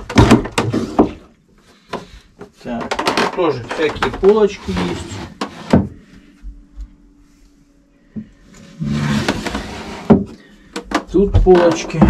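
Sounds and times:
rustling scrape: 0:08.5 - 0:10.1.

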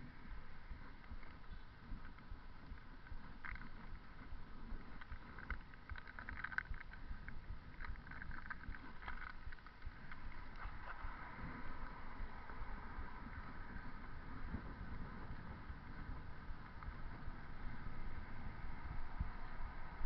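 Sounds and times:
road rumble: 0:00.0 - 0:20.0
wind buffeting microphone: 0:00.0 - 0:20.0.

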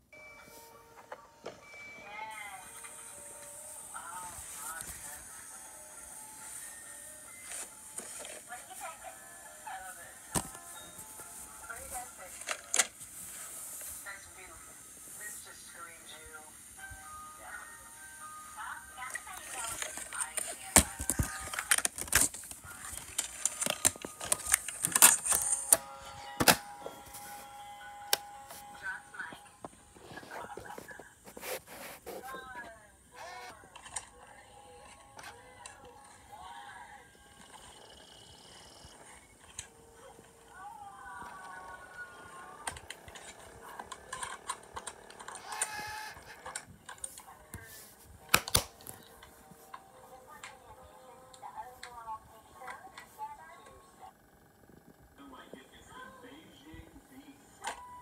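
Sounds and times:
disc drive whir: 0:19.3 - 0:31.2, 0:37.1 - 0:47.0
plastic disc case clicks: 0:19.6 - 0:25.8, 0:26.4 - 0:26.7, 0:48.3 - 0:49.1.

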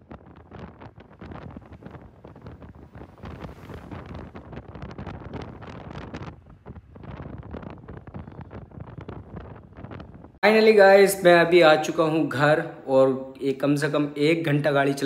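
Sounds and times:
wind buffeting microphone: 0:00.0 - 0:10.4.

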